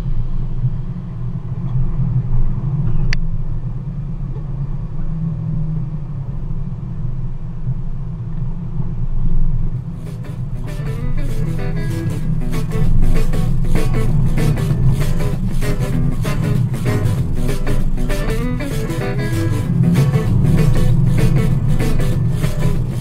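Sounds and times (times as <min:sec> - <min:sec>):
music: 0:09.8 - 0:23.0.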